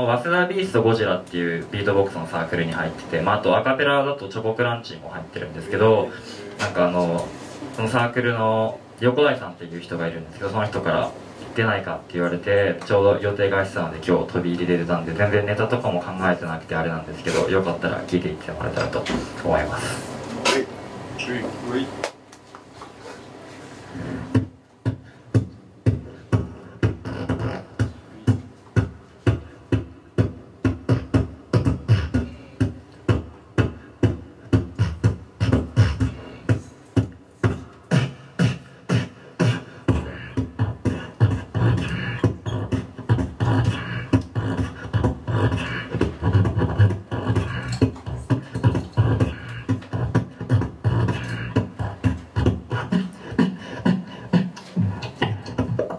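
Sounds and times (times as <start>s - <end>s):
beatboxing into a microphone: 0.0s - 22.0s, 23.2s - 55.9s.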